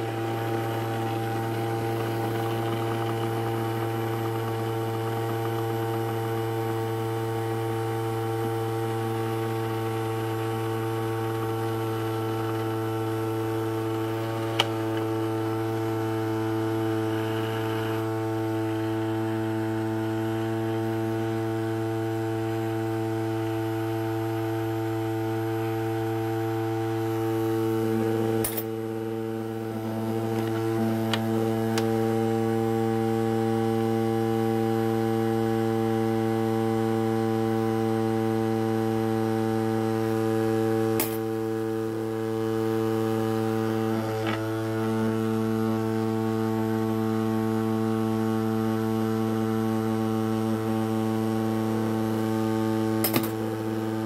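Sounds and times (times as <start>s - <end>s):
ultrasonic cleaner buzzing hum: 0.0s - 54.0s.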